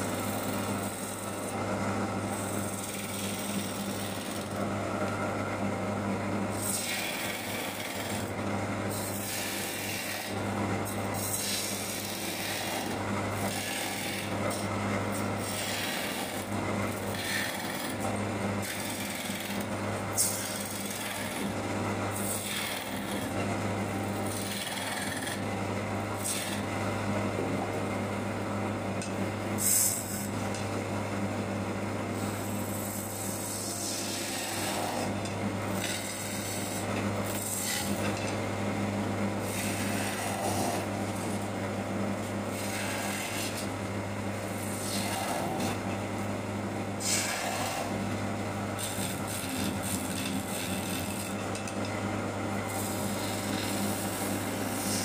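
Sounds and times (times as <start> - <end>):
lathe motor hum: 0.0 - 55.0
chisel scraping wood on lathe: 0.1 - 1.6, 2.3 - 4.6, 6.6 - 18.0, 18.6 - 21.5, 22.2 - 23.5, 24.3 - 25.4, 26.2 - 26.7, 32.2 - 35.2, 35.8 - 38.3, 39.4 - 41.4, 42.5 - 43.7, 44.6 - 45.8, 47.0 - 48.0, 48.8 - 51.8, 52.7 - 55.0.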